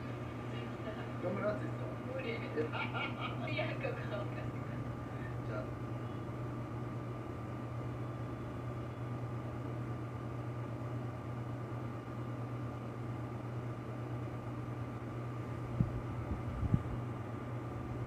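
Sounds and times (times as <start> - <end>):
low mechanical hum: 0.0 - 18.0.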